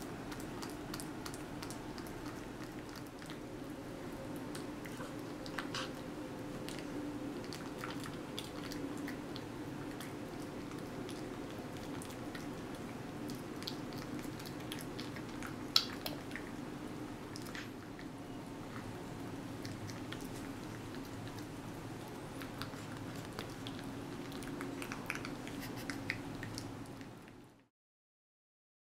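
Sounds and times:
cat chewing and licking: 0:00.0 - 0:27.7
wet smacking clicks: 0:13.3 - 0:16.5, 0:22.4 - 0:27.4.

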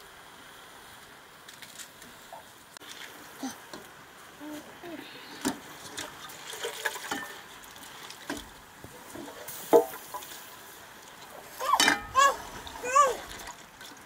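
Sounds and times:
dripping water: 0:05.2 - 0:14.0.

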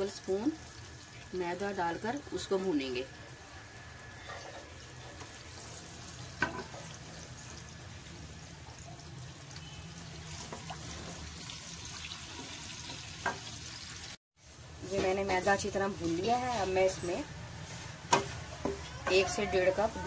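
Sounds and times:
oil sizzling in a wok: 0:00.0 - 0:20.0
wooden spatula scraping a pan: 0:04.1 - 0:07.0, 0:10.4 - 0:11.4, 0:14.8 - 0:20.0
spatula knocking on pan: 0:18.1 - 0:19.4.

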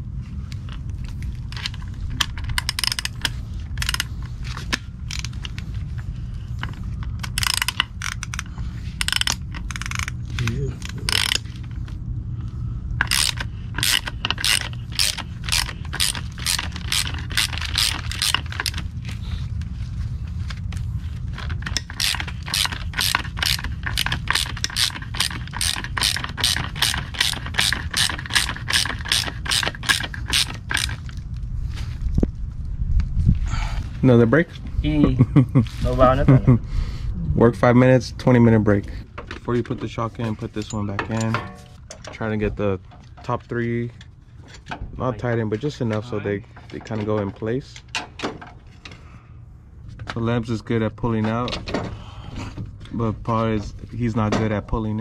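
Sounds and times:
hand ratchet clicking: 0:01.6 - 0:04.1, 0:07.2 - 0:11.5, 0:13.0 - 0:18.8, 0:21.4 - 0:31.1.

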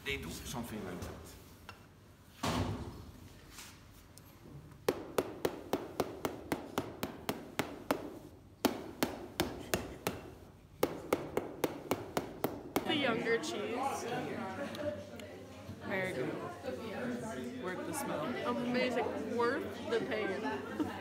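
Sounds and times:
hammer tapping cheese wheel: 0:04.9 - 0:12.9.

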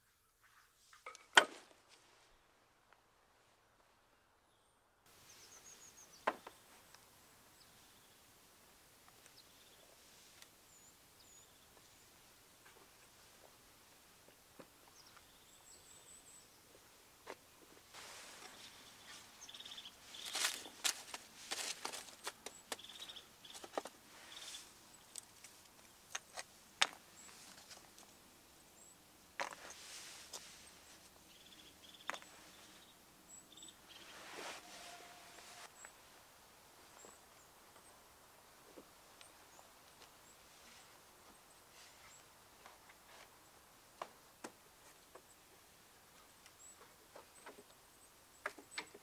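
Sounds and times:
small birds chirping: 0:04.4 - 0:08.4, 0:09.0 - 0:36.1, 0:36.8 - 0:49.0
faint high bird chirps: 0:22.4 - 0:24.7, 0:31.3 - 0:36.0.

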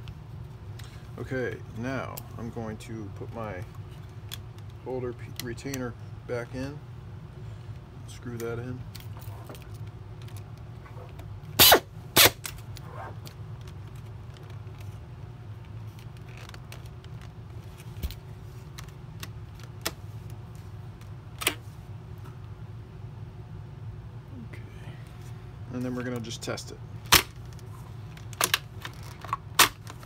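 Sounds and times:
steady low hum: 0:00.0 - 0:30.0
pneumatic screwdriver hissing: 0:11.6 - 0:12.4.

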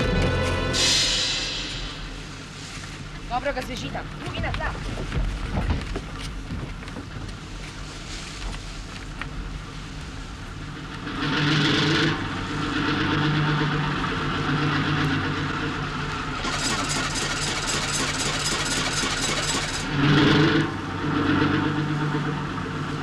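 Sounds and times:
boat engine droning: 0:00.0 - 0:04.5, 0:09.4 - 0:23.0.

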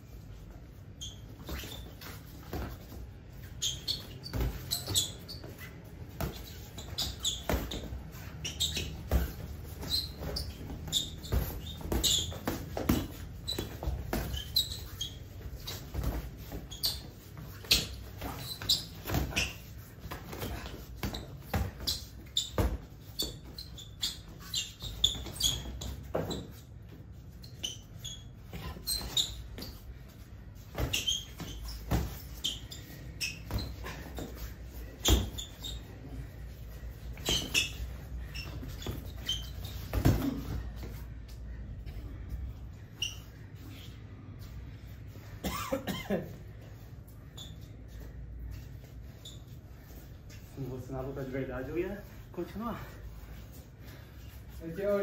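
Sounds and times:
sneakers squeaking on floor: 0:00.0 - 0:55.0
boxing gloves thudding: 0:08.6 - 0:26.5, 0:33.3 - 0:35.6, 0:38.5 - 0:40.8.

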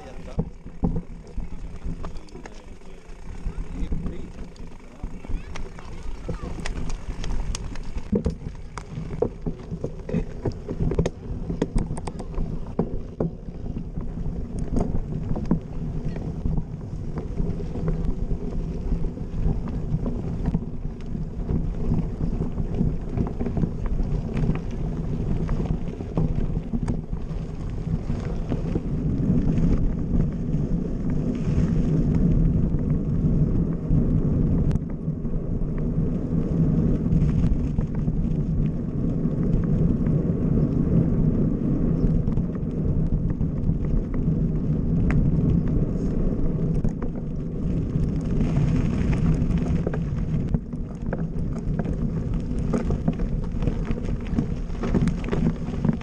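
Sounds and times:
bike rattles and clicks: 0:00.0 - 0:56.0
bike tyres rumbling on dirt: 0:00.0 - 0:56.0
wind on microphone: 0:00.0 - 0:56.0.

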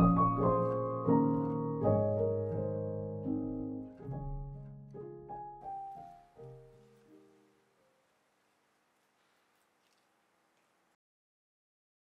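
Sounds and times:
slow gentle instrumental music: 0:00.0 - 0:07.7.

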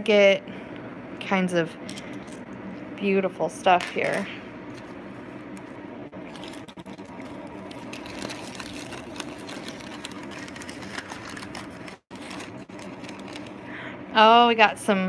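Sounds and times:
tissue paper rustling and crinkling: 0:06.3 - 0:13.7.

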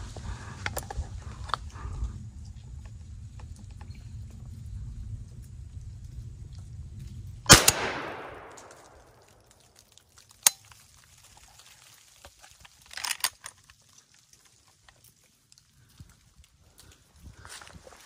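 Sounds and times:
gunshot echoing through woods: 0:07.5 - 0:09.4.

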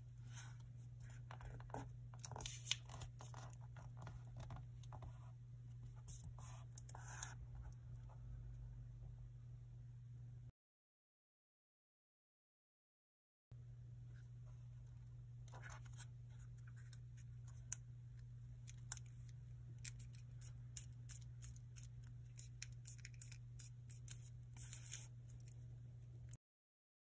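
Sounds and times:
low steady hum: 0:00.0 - 0:10.5, 0:13.6 - 0:26.4
paper rustling and creasing: 0:00.3 - 0:05.0.

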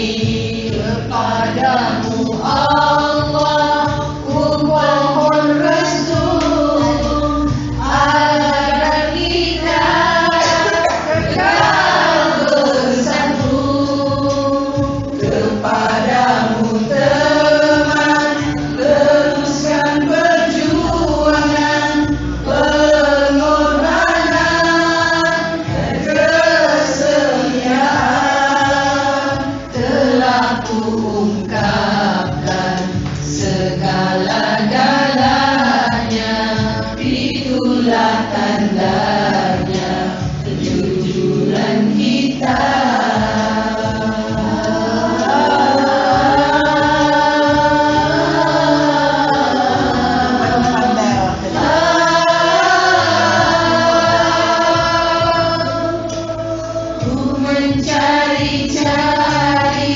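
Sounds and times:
song with sung vocals: 0:00.0 - 0:59.9.

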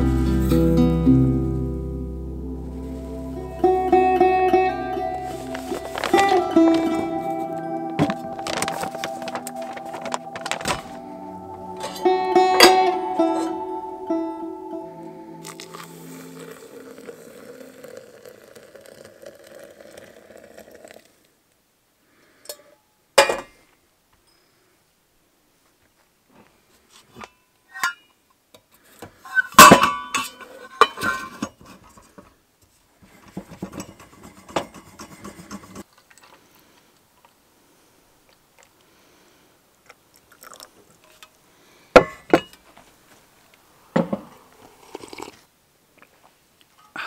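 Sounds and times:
rustling and scraping: 0:05.1 - 0:11.1, 0:30.8 - 0:36.4.

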